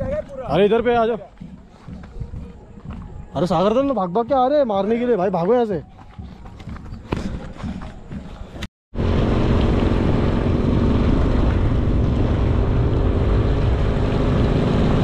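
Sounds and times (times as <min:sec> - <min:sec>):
wind rushing over microphone: 0:08.2 - 0:15.0
motorcycle engine running: 0:09.0 - 0:15.0.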